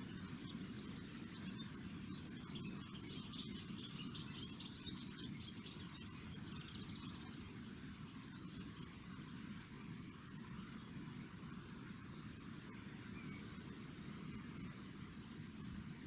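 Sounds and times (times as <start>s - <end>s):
faint high chirping: 0.0s - 9.0s.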